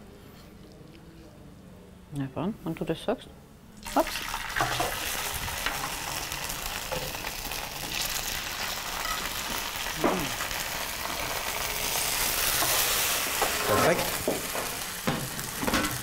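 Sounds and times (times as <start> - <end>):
polenta sizzling in a frying pan: 3.9 - 16.0.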